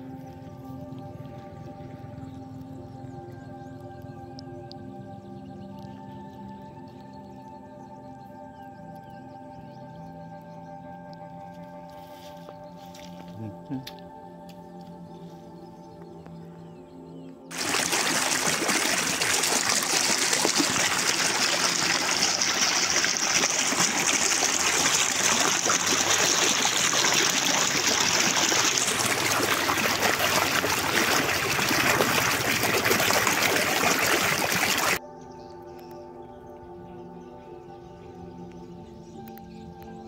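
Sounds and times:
floodwater rushing over stones: 0:17.5 - 0:35.0.

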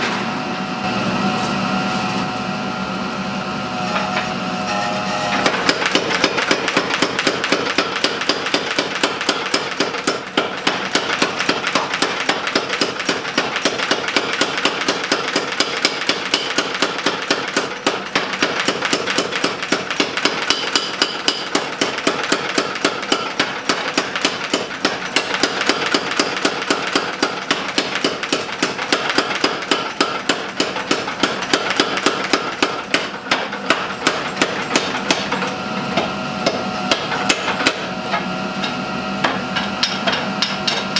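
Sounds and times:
power hammer pounding hot metal: 0:05.3 - 0:37.9, 0:38.6 - 0:40.9.

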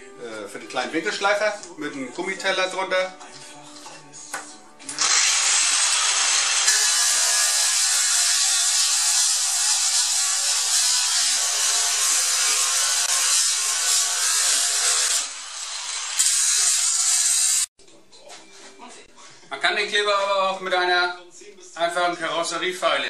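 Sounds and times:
angle grinder grinding: 0:04.8 - 0:17.7.

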